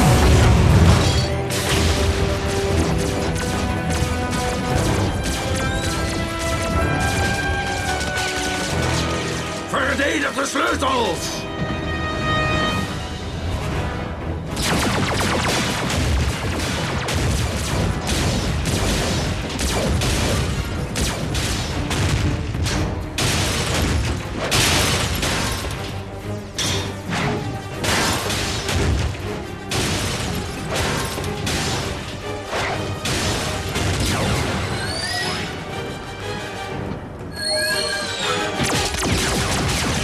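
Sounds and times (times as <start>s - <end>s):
booms and crashes: 0.0s - 9.6s, 14.5s - 25.9s, 38.6s - 40.0s
action music: 0.0s - 40.0s.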